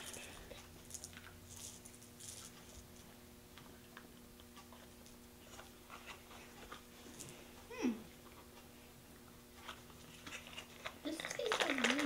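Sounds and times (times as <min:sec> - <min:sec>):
faint clicks and rustles: 0:00.0 - 0:12.0
child vocal sound: 0:07.7 - 0:08.1.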